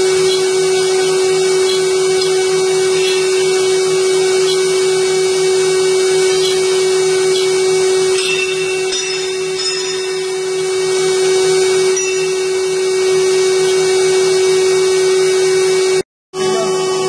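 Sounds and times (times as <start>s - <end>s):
machine spindle whining: 0.0s - 17.0s.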